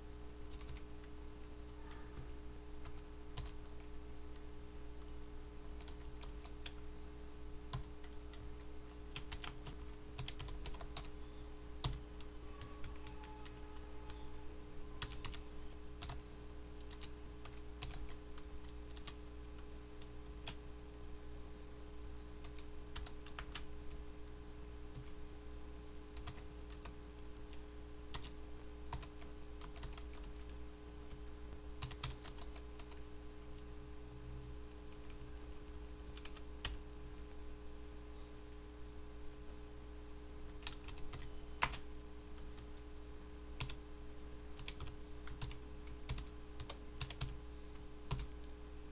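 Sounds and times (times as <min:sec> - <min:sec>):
low electrical hum: 0:00.0 - 0:48.9
keyboard typing clicks: 0:00.4 - 0:01.1, 0:07.7 - 0:11.1, 0:11.8 - 0:14.2, 0:15.0 - 0:15.4, 0:16.8 - 0:20.6, 0:22.4 - 0:24.1, 0:27.5 - 0:33.7, 0:36.2 - 0:36.8, 0:40.5 - 0:42.9, 0:43.6 - 0:43.8, 0:44.5 - 0:47.4, 0:48.1 - 0:48.3.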